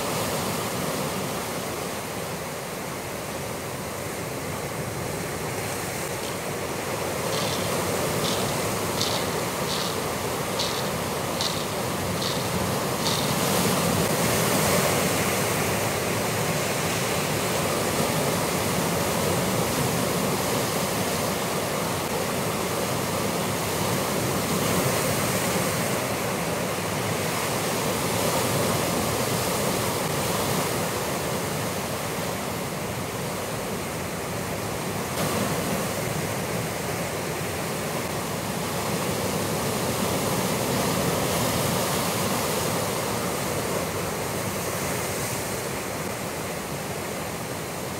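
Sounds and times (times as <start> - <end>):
surf washing against rocky shore: 3.0 - 32.2.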